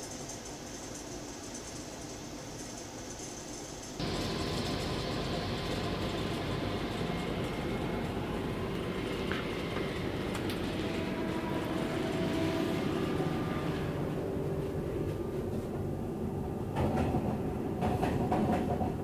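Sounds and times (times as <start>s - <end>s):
train wheels rumbling on track: 4.0s - 19.0s.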